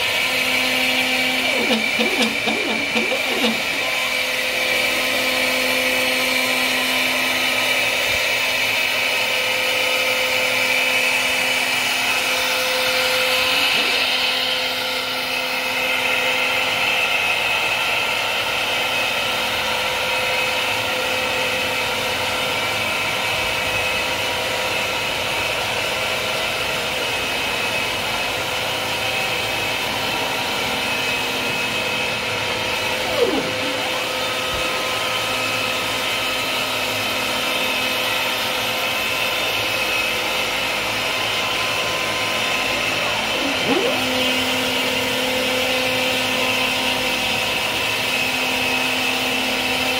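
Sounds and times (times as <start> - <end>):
router spindle high whine: 0.0 - 49.9
dust vacuum drawing: 1.3 - 4.0.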